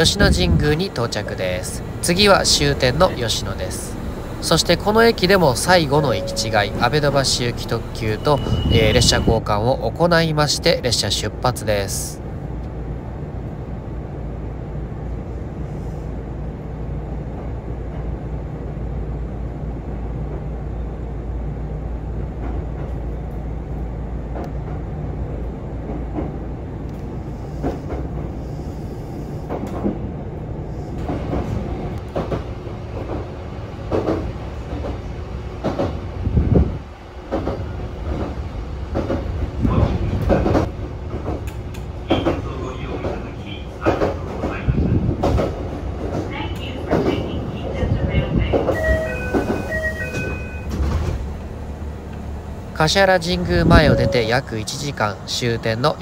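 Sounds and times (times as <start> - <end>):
electric train rumble: 0.0 - 56.0.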